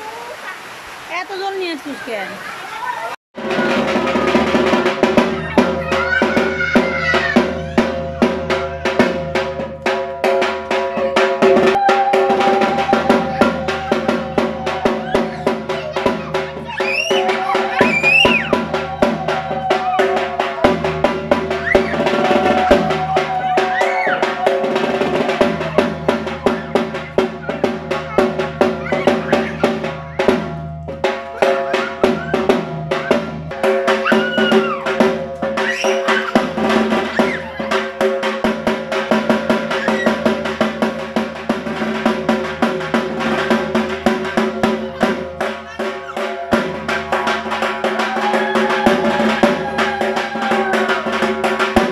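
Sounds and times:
drums beaten in fast rolls: 3.4 - 51.9.

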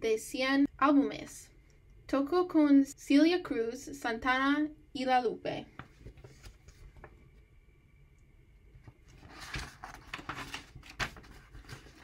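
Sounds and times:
paper page turning: 5.8 - 7.1, 8.9 - 12.0.

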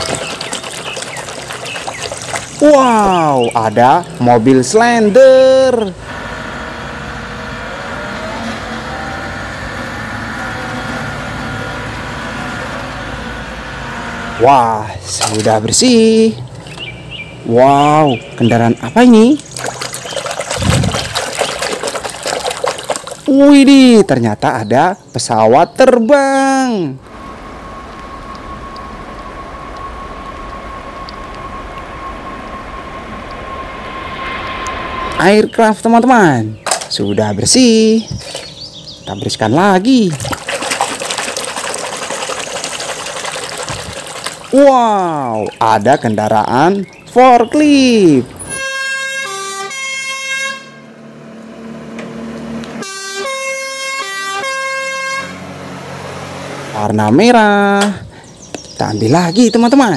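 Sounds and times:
thin steady whine: 2.5 - 16.4, 26.0 - 38.1
forklift engine running: 5.8 - 14.5, 27.0 - 35.2, 50.8 - 52.8
jet engines roaring: 27.0 - 36.8
two-tone emergency horn: 48.5 - 51.0, 52.8 - 55.6.

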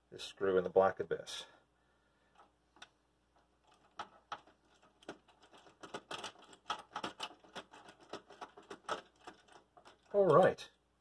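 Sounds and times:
screw clicking as it is turned: 3.6 - 10.2.

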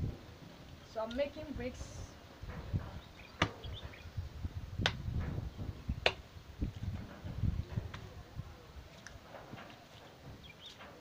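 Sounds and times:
sharp slaps on clay: 4.8 - 5.0.

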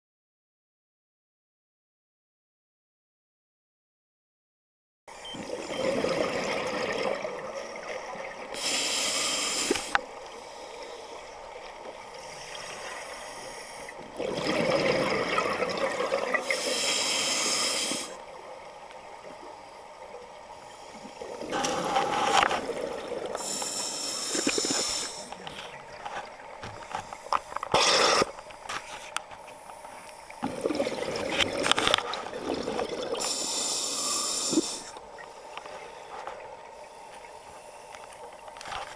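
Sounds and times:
exhaled air bubbling: 5.4 - 10.4, 13.9 - 18.3, 30.3 - 35.6
regulator inhale hiss: 8.5 - 11.4, 12.1 - 14.0, 16.4 - 18.2, 23.3 - 25.7, 26.8 - 30.4, 33.2 - 38.1.

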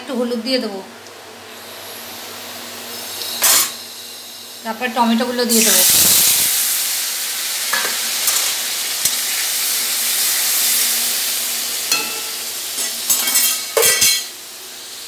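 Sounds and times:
tomatoes sizzling in hot oil: 1.5 - 15.0
spatula clattering onto stove: 11.9 - 14.3.

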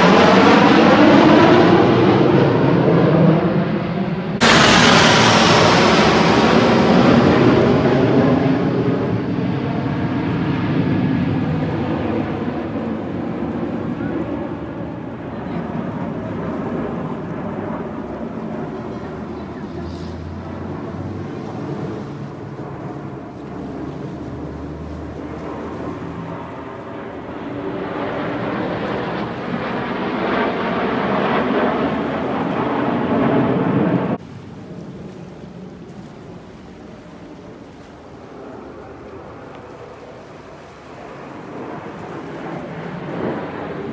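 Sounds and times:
steady quieter rumble: 0.0 - 34.2
jets roaring past: 0.0 - 43.9.

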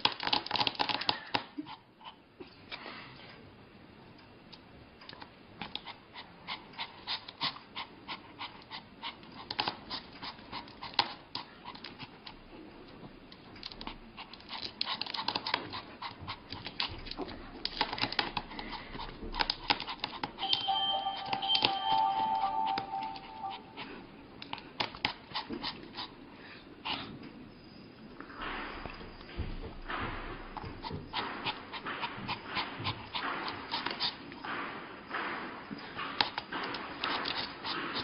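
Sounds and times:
small dog panting and whimpering: 0.6 - 2.8, 5.6 - 12.5, 13.6 - 27.3, 30.3 - 34.5, 35.9 - 38.0
music: 20.5 - 24.0.

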